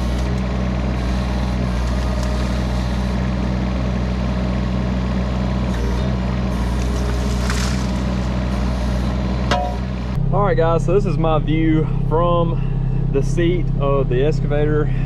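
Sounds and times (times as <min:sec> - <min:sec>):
diesel engine running steadily: 0:00.0 - 0:15.0.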